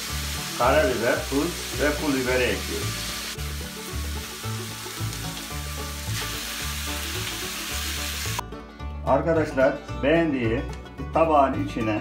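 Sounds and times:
meat and peppers sizzling in oil: 0.0s - 8.4s
background music bass line: 0.0s - 12.0s.

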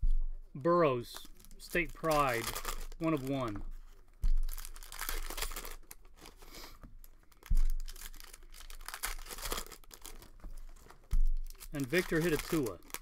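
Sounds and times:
dull low thump: 0.0s - 0.5s, 3.5s - 5.4s, 6.9s - 9.4s, 10.1s - 11.7s
plastic wrapper tearing and crinkling: 1.0s - 13.0s.

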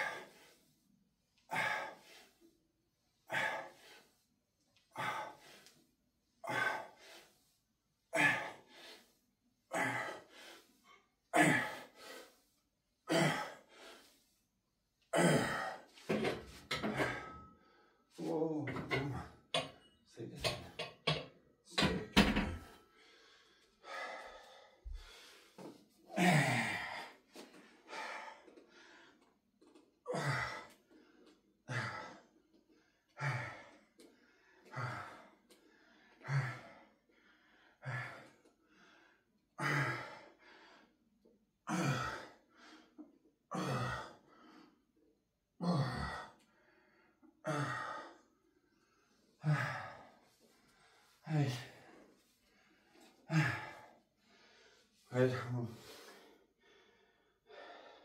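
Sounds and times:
man breathing out hard with grunts: 26.1s - 27.2s, 49.4s - 50.2s.

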